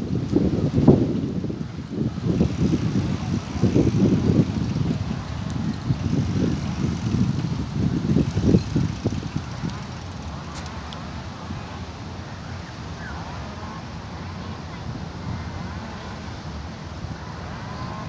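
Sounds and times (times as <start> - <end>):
bicycle rolling on pavement: 0.0 - 11.8
wind buffeting microphone: 0.0 - 18.0.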